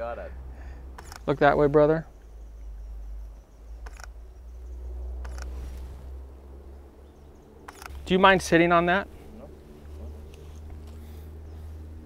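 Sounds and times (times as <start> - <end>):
steady low rumble: 0.0 - 12.0
camera shutter clicks: 1.0 - 1.3, 3.8 - 4.2, 5.2 - 5.6, 7.7 - 8.0.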